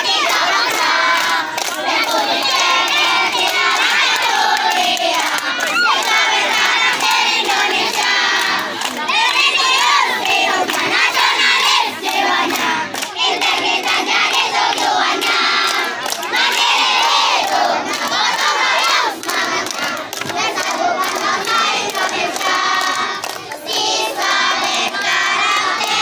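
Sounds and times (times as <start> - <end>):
children chanting and shouting: 0.0 - 26.0
hands clapping: 0.0 - 26.0.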